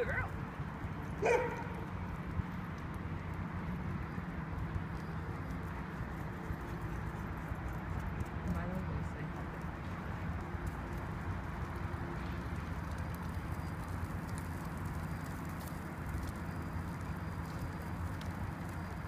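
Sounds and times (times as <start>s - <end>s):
low urban background rumble: 0.0s - 19.0s.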